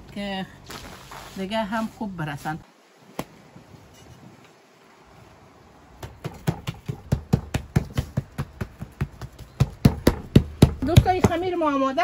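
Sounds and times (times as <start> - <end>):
fingertips patting dough: 6.0 - 11.5.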